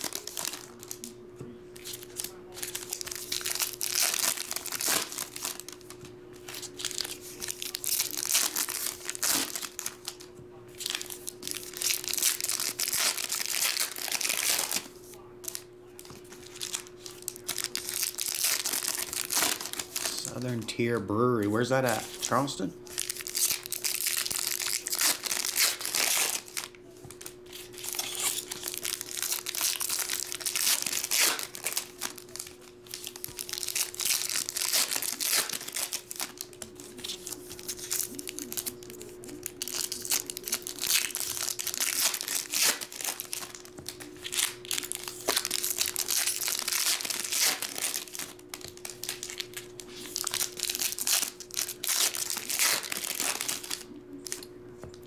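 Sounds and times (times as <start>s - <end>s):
foil wrappers tearing and crinkling: 0.0s - 1.1s, 1.8s - 55.0s.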